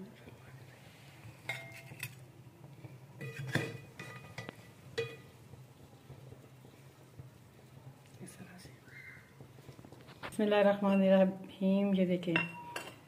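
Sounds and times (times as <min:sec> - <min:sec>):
metal spoon clinking on pot and dish: 0:01.5 - 0:02.2, 0:03.2 - 0:05.4, 0:12.4 - 0:13.0.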